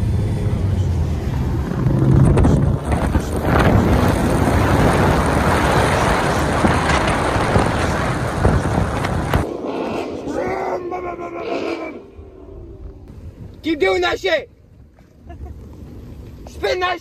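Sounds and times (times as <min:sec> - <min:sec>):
car engine droning: 0:00.0 - 0:13.3
wind rushing over microphone: 0:00.0 - 0:13.6.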